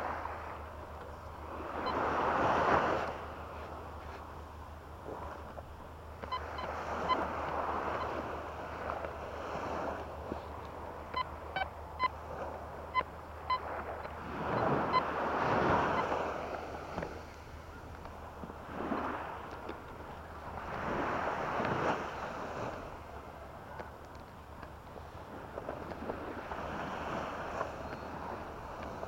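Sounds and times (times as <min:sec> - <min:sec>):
waves washing on shore: 0:00.0 - 0:29.0
metal detector beeps: 0:01.0 - 0:03.2, 0:06.2 - 0:09.0, 0:09.7 - 0:18.1, 0:27.5 - 0:29.0.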